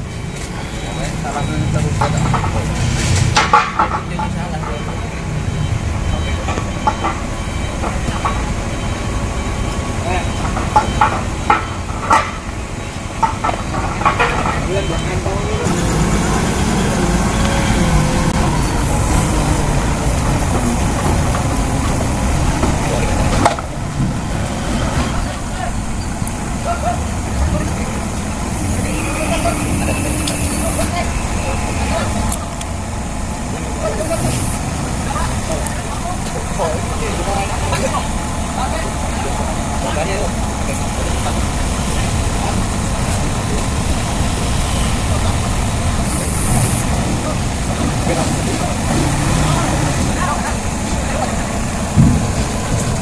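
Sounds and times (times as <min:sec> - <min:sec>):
forklift engine running: 0:00.0 - 0:53.0.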